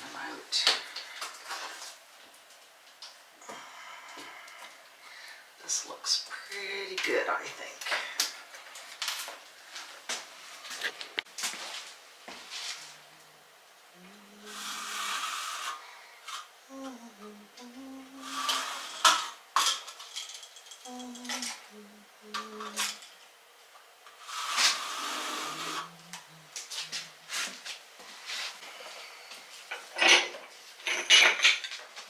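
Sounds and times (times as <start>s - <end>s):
plastic spacers scraping tile: 24.2s - 25.9s.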